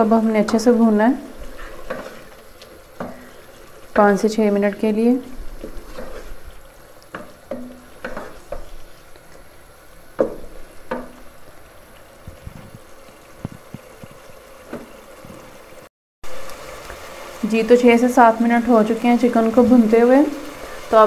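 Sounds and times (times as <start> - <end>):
faint sizzle of frying: 0.0 - 21.0
wooden spatula scraping pot: 0.4 - 9.0.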